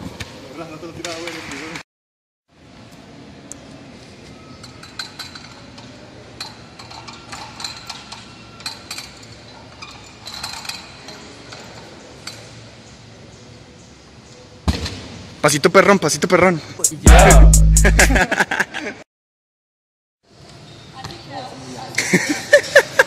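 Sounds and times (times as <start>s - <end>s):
metallic clinks from gymnastics bar: 6.4s - 12.6s.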